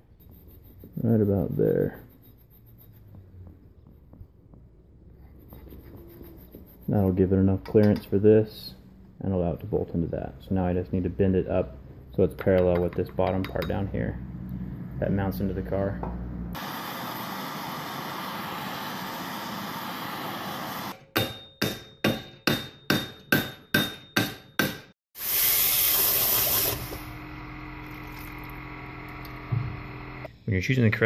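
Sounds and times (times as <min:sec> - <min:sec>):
gas torch hissing: 0:16.6 - 0:21.0, 0:25.2 - 0:27.1
hot steel sizzling in water: 0:25.2 - 0:27.0.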